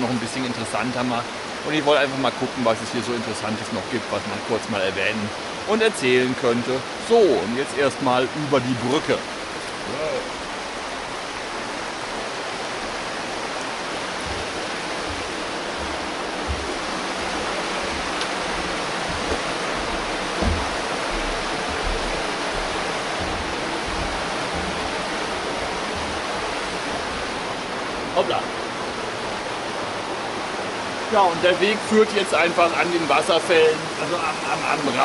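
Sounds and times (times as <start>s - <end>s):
mountain stream rushing: 0.0s - 35.0s
soft low thumps: 13.5s - 27.8s.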